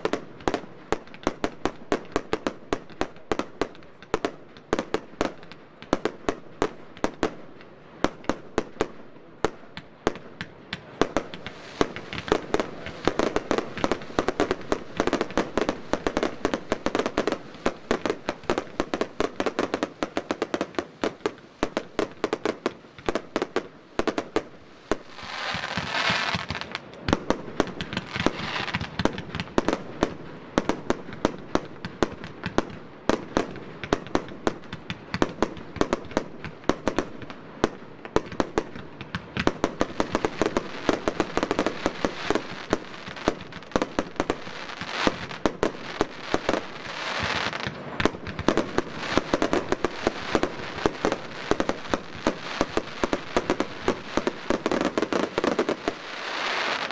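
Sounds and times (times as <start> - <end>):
firework launch thumps and bursts: 9.7 - 16.9, 24.9 - 29.8, 38.2 - 54.0.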